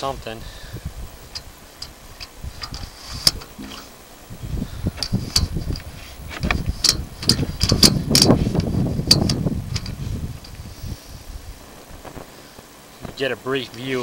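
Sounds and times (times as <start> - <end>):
cable clicking and knocking: 1.4 - 3.9, 5.0 - 10.6.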